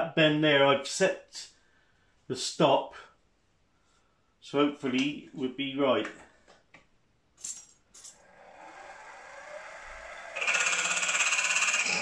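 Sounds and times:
drill cutting into metal: 8.2 - 12.0
milling machine spindle running: 8.2 - 12.0.

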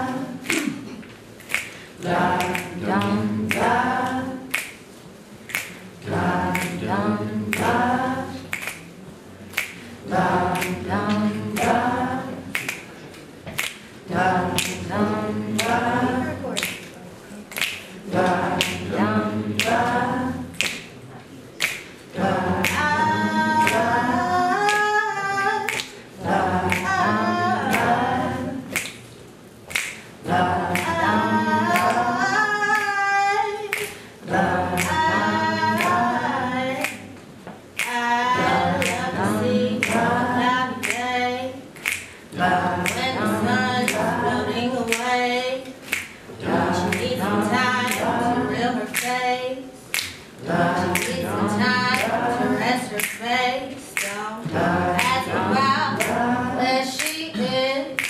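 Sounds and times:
woman singing a cappella: 0.0 - 1.0, 1.9 - 4.9, 6.0 - 8.8, 9.6 - 12.9, 14.0 - 16.8, 18.0 - 20.9, 22.1 - 29.0, 30.2 - 58.0
group of voices singing: 0.0 - 4.8, 5.5 - 8.9, 9.6 - 16.9, 17.5 - 21.0, 21.6 - 29.0, 29.7 - 37.2, 37.8 - 58.0
finger snapping: 0.4 - 0.8, 1.4 - 1.8, 2.4 - 3.7, 4.5 - 4.8, 5.5 - 5.8, 6.5 - 6.8, 8.5 - 8.8, 9.5 - 9.8, 10.5 - 10.8, 12.5 - 12.8, 13.6 - 13.8, 19.6 - 19.9, 20.6 - 20.9, 21.6 - 21.9, 25.7 - 26.0, 28.7 - 29.0, 29.7 - 30.0, 33.7 - 34.0, 40.8 - 41.0, 41.8 - 42.2, 42.8 - 43.1, 45.8 - 46.2, 48.9 - 49.2, 49.9 - 50.2, 53.0 - 53.3.

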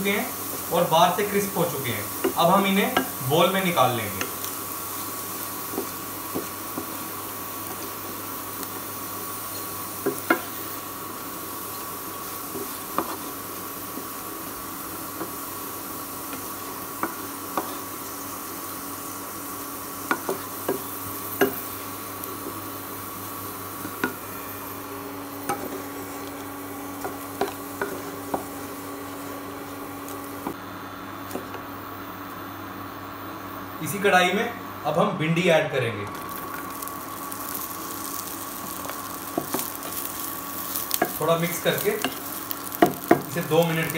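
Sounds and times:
faint oil sizzle: 0.0 - 31.9, 36.1 - 43.9
wooden spoon knocking a pan: 42.8 - 43.3.

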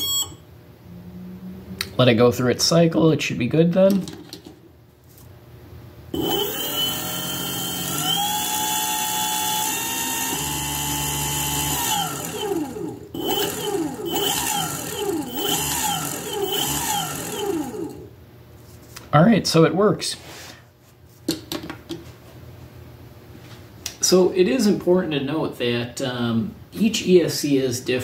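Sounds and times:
electric motor whine revving: 6.2 - 18.1.

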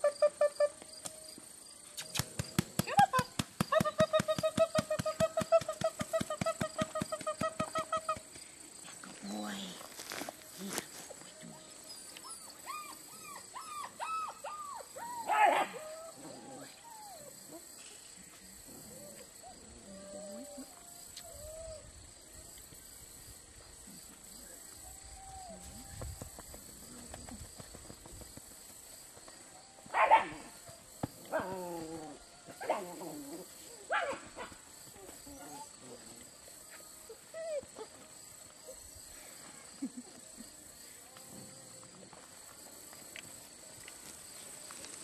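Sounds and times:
puppy barking: 30.0 - 30.4, 33.9 - 34.5.

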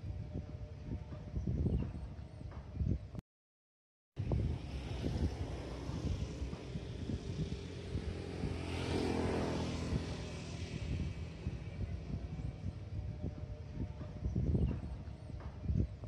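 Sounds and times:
wind rumble on microphone: 0.0 - 3.2, 4.2 - 16.0
vehicle engine passing by: 4.2 - 15.7.

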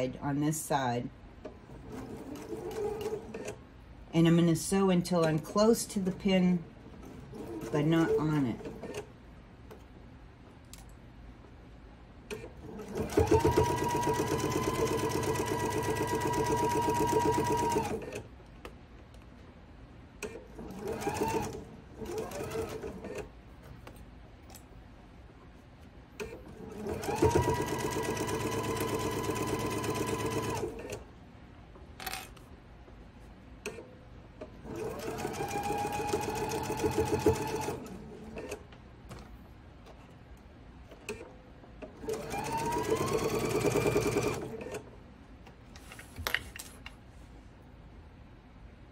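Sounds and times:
sewing machine stitching: 12.3 - 18.2, 20.2 - 23.3, 26.2 - 31.0, 34.6 - 38.6, 41.9 - 44.9.

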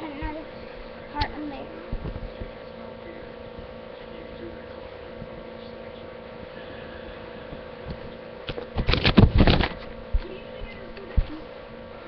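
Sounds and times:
buzzing hum: 0.0 - 12.0
rustling and bumping of handling: 7.8 - 11.5.

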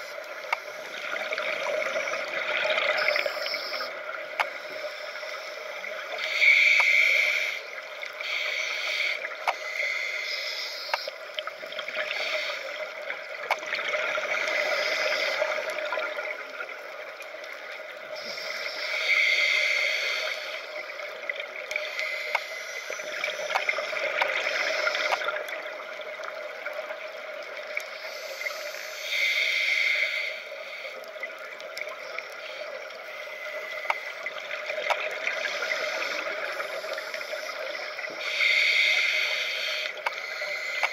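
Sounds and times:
faint clicks: 0.0 - 40.9
steady underwater hiss: 0.0 - 40.9
diver breathing through regulator: 18.2 - 20.8, 28.0 - 31.0, 38.2 - 40.9.

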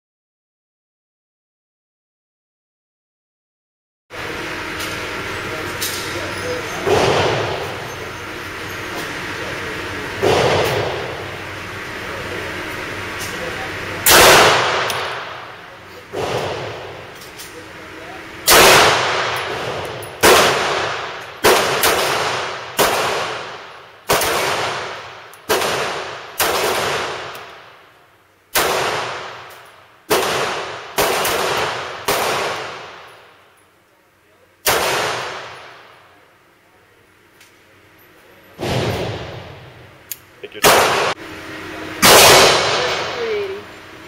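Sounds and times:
handgun shots echoing: 14.0 - 15.5, 18.5 - 27.6, 28.5 - 33.1, 34.6 - 35.8, 38.6 - 41.2, 42.0 - 43.2.

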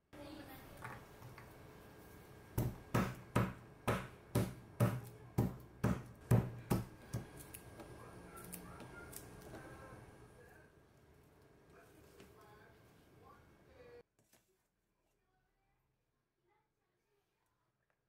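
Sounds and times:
pestle pounding on wooden board: 2.6 - 7.9.

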